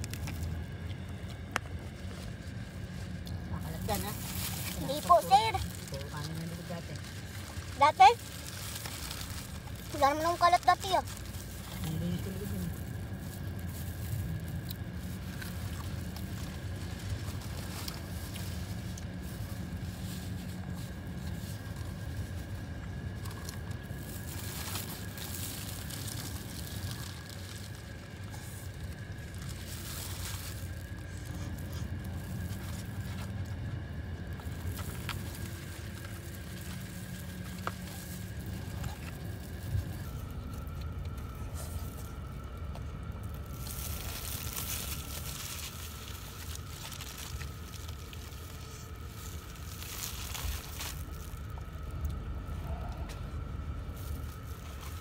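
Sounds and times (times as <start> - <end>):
car interior hum: 0.0 - 55.0
low rumble: 0.0 - 55.0
paper and plastic crinkling: 0.0 - 55.0.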